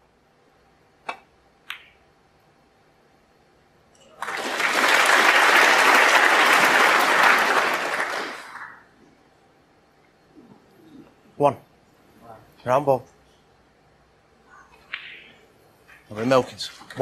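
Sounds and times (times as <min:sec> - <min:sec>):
snooker balls clicking: 0:01.0 - 0:02.0, 0:14.8 - 0:16.4
audience applause: 0:04.1 - 0:08.9.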